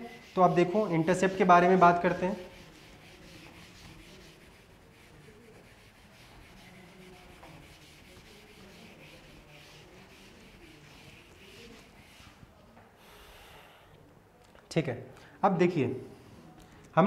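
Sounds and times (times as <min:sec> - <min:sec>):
pen scratching on paper: 0:00.0 - 0:12.4.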